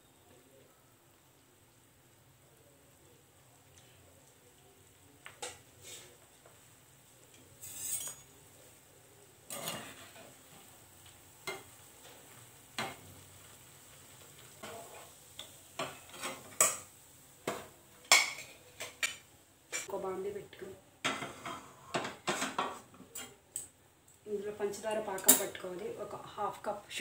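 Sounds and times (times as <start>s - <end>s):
bread frying in hot oil: 0.0s - 27.0s
steel spoon clinking against pan: 7.6s - 8.4s.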